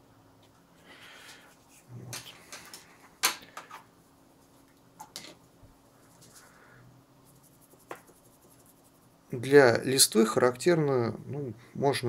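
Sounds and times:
brush tapping metal palette: 7.5 - 8.8.

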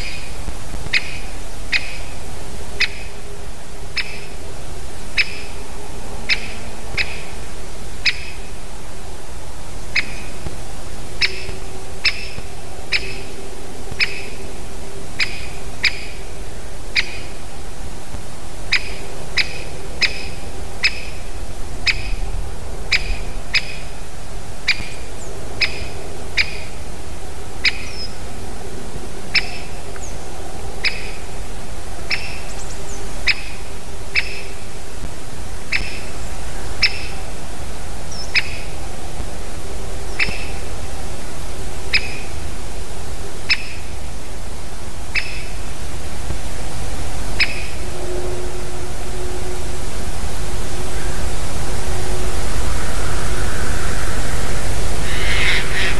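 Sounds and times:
woodpecker kik calls: 45.1 - 45.5, 55.0 - 55.9.

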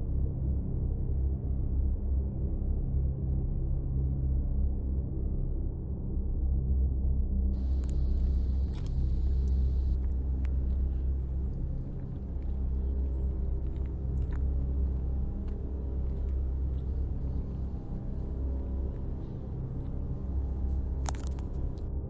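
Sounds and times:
low rumbling drone: 5.3 - 22.0
faint ticks: 7.6 - 21.9.

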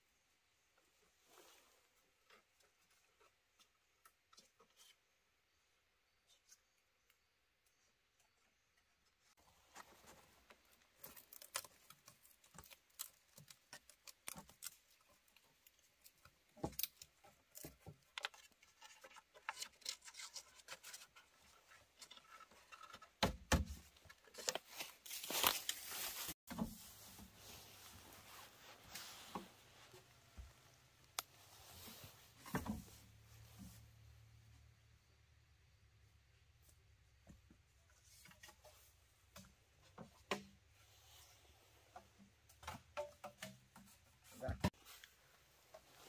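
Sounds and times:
clicks taps and scraping: 1.4 - 5.3, 6.2 - 33.8, 36.6 - 46.0.

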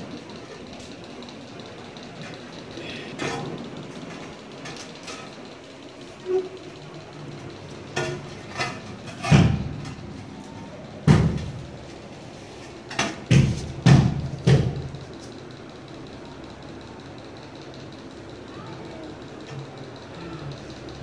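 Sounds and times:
objects knocking and thudding: 7.9 - 10.1, 10.9 - 11.8, 12.8 - 15.1.

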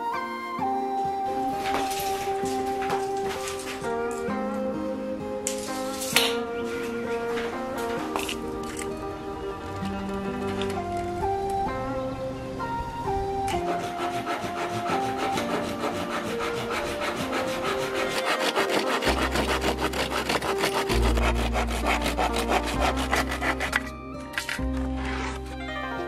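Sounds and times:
background music: 0.0 - 26.0
hand saw cutting wood: 1.6 - 3.9, 13.4 - 25.5.

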